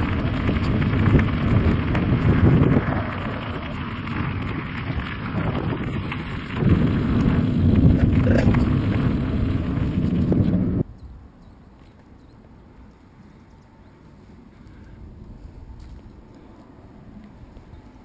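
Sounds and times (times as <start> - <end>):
bicycle tyres rolling on gravel: 0.0 - 10.9, 12.7 - 18.0
wind buffeting microphone: 0.0 - 11.3, 14.1 - 18.0.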